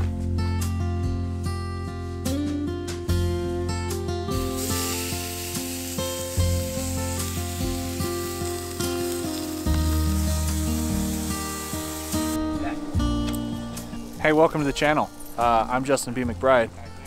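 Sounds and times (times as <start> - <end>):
acoustic guitar music: 0.0 - 17.0
patties sizzling in a skillet: 4.4 - 12.4.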